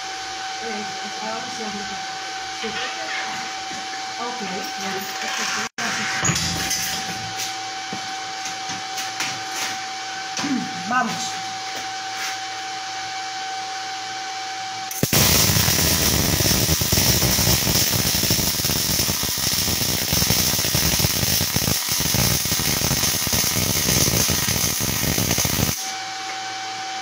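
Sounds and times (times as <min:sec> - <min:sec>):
steady hum: 0:07.1 - 0:26.9
welding arc crackling sizzle: 0:14.9 - 0:26.0.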